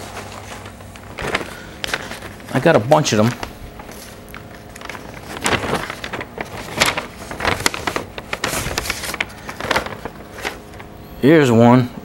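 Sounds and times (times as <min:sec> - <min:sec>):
paper envelopes rustling: 0:00.0 - 0:11.0.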